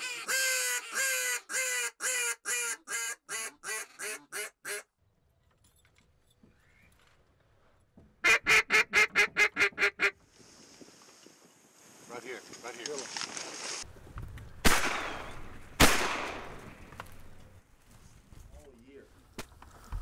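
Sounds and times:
duck call quacks: 0:00.0 - 0:04.9, 0:08.2 - 0:10.2.

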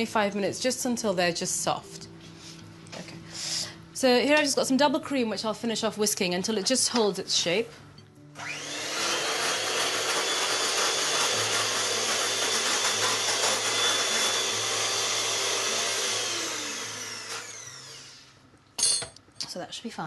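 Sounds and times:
electric hand mixer whisking: 0:08.4 - 0:18.3.

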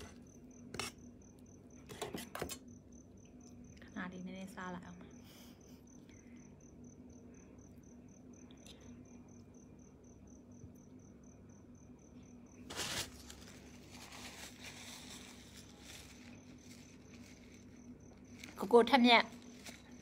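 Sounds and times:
rapid insect-like chirping: 0:00.0 - 0:20.0
tissue rustling: 0:12.7 - 0:18.6.

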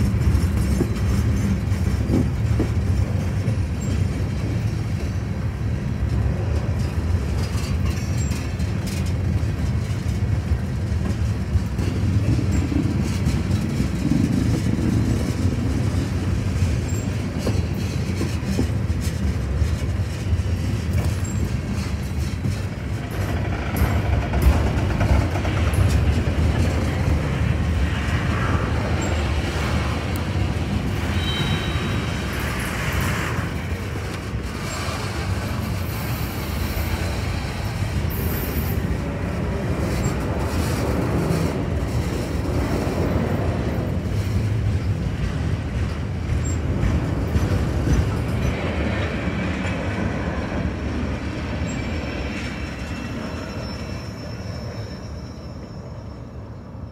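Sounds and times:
wheels clicking over rails: 0:00.0 - 0:31.3
freight train rumble: 0:00.0 - 0:56.9
high-pitched wheel squeal: 0:31.0 - 0:32.5, 0:51.6 - 0:56.6.

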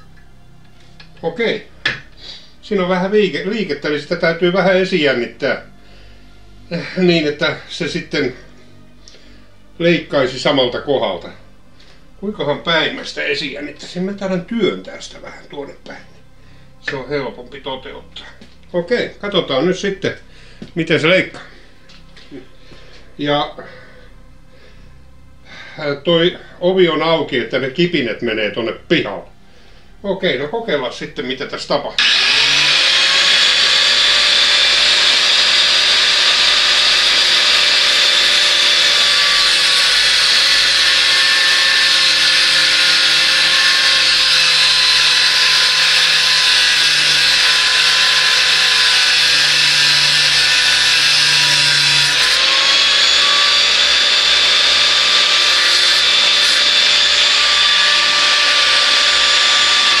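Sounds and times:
grinding wheel grinding steel: 0:32.0 - 1:00.0.

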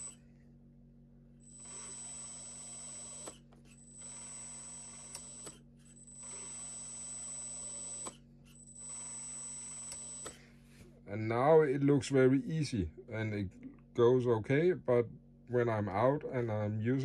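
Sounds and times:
electric pump whining: 0:00.0 - 0:00.4, 0:01.4 - 0:10.6.

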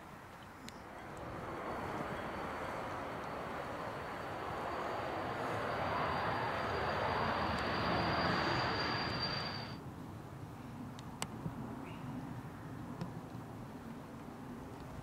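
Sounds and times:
jet engines roaring and whining: 0:00.8 - 0:09.8.

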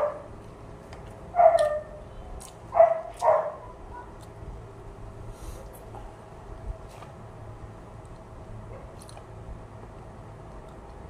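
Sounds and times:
dog barking: 0:00.0 - 0:00.3, 0:01.4 - 0:02.0, 0:02.8 - 0:04.1.

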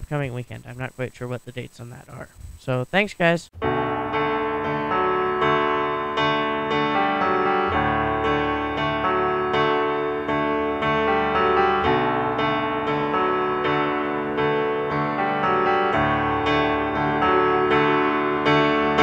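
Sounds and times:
piano music: 0:03.6 - 0:19.0.

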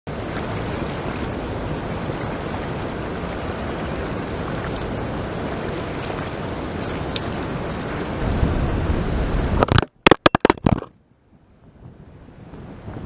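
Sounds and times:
river rushing over rapids: 0:00.1 - 0:09.6
wind on microphone: 0:00.1 - 0:09.9, 0:10.5 - 0:13.0.

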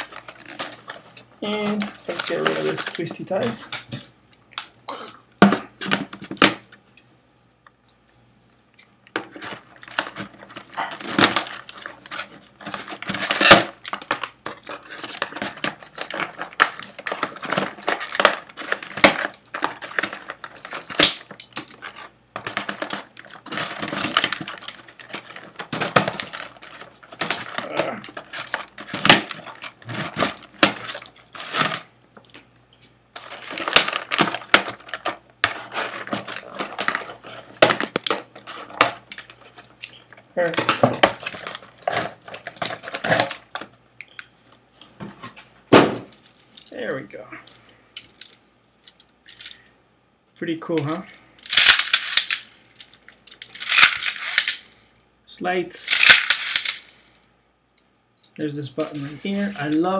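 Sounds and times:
plastic packaging crinkling: 0:00.0 - 0:03.9, 0:09.1 - 0:44.3, 0:51.4 - 0:54.7, 0:55.8 - 0:57.1.

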